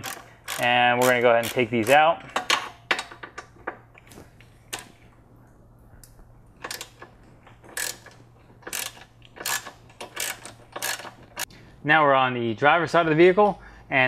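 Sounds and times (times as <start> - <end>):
ratchet clicking: 0.0 - 3.5, 6.6 - 11.5.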